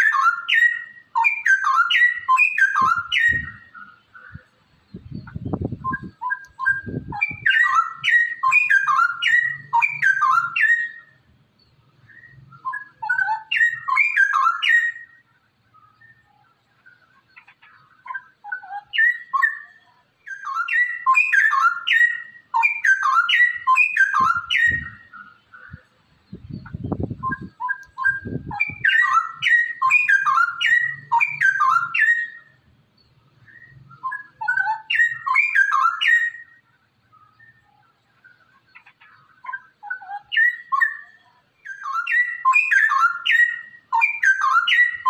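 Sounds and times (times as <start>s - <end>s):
bird singing bubbling whistles: 0.0s - 3.9s, 4.9s - 11.2s, 12.0s - 15.2s, 18.1s - 25.3s, 26.4s - 32.6s, 33.4s - 36.6s, 39.4s - 45.0s.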